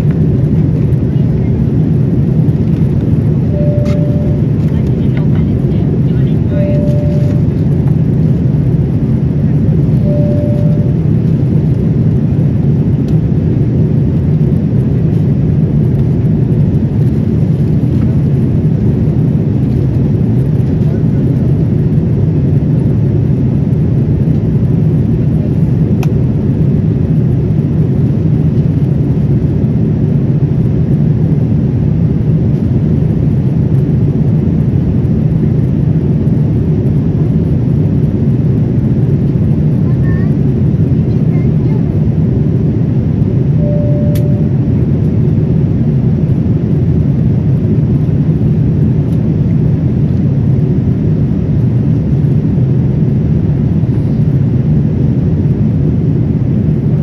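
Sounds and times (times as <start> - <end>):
airliner cabin engine rumble: 0.0 - 57.0
single tone: 3.4 - 5.0, 6.4 - 7.6, 9.9 - 11.4, 43.5 - 44.8.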